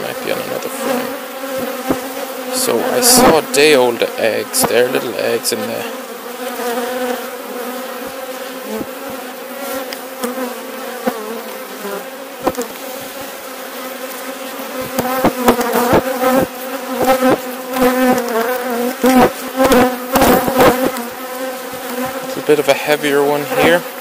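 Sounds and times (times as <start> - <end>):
bees buzzing: 0.0 - 24.0
bumps and knocks: 1.6 - 2.1.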